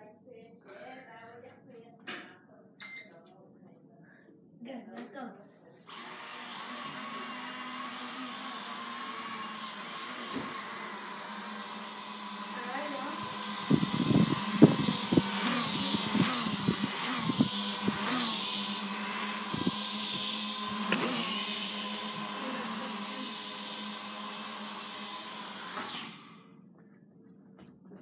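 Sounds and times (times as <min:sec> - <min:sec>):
toy drone propellers whining: 0:05.9 - 0:26.4.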